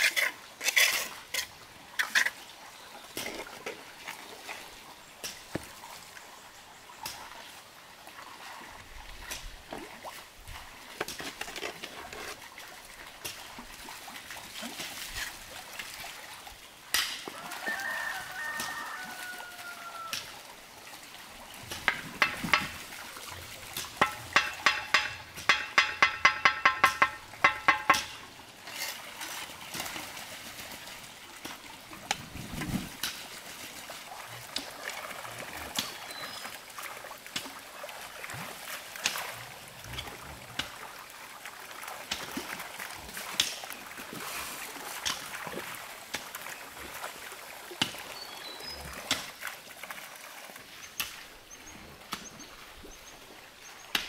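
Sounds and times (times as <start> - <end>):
trowel tapping bricks: 21.9 - 22.8, 24.0 - 28.2.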